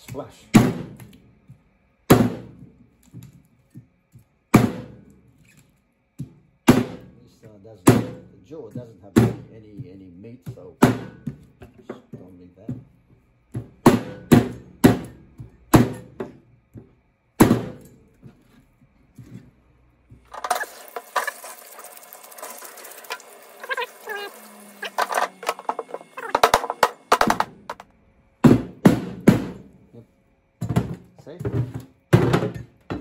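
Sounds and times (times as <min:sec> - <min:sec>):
cleaver chopping on cutting board: 0:02.1 - 0:02.6, 0:04.5 - 0:05.1, 0:06.7 - 0:07.1, 0:07.9 - 0:08.3, 0:09.2 - 0:09.9, 0:10.5 - 0:11.8, 0:13.8 - 0:16.4, 0:17.4 - 0:17.8.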